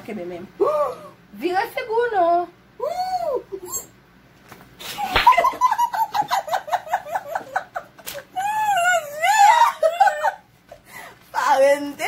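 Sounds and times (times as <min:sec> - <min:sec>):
open-hand slap: 0:04.5 - 0:05.6
high squealing laugh: 0:04.9 - 0:10.5
women laughing: 0:05.0 - 0:10.5.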